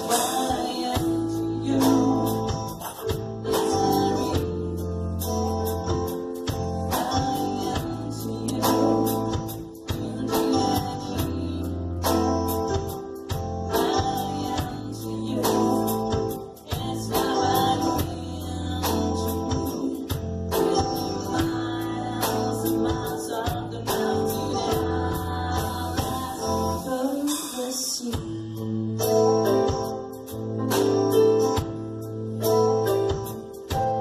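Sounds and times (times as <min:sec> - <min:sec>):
person singing: 0:00.0 - 0:04.9, 0:06.8 - 0:12.9, 0:13.7 - 0:30.8
sustained bass line: 0:00.0 - 0:26.9
steady drum beat: 0:00.0 - 0:28.6
live band playing: 0:00.0 - 0:34.0.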